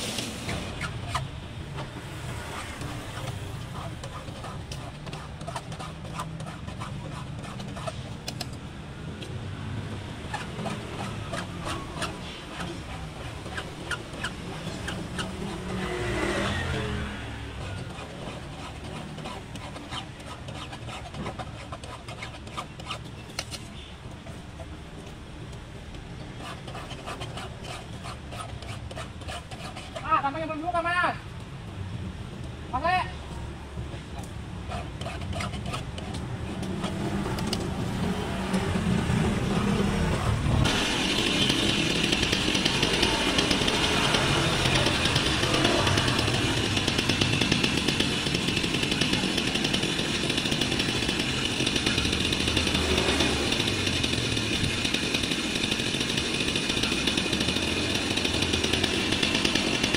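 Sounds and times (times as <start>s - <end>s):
low traffic rumble: 0.0s - 59.9s
small clicks and scrapes: 0.1s - 16.7s, 17.6s - 30.1s, 34.1s - 37.8s
vehicle passing: 14.7s - 18.0s, 42.9s - 47.2s.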